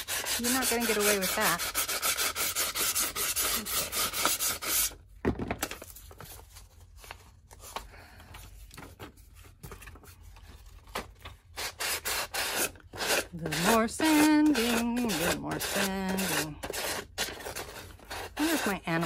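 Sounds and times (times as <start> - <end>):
sanding block scraping: 0.0 - 5.0, 11.6 - 19.0
paper rustling: 5.5 - 11.6.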